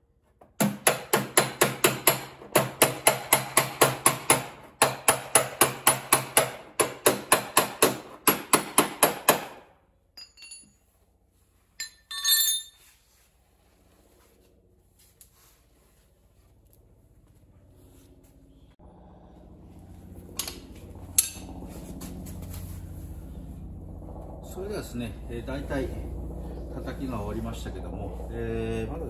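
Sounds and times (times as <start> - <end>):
rapid hammer blows on metal: 0.6 - 9.6.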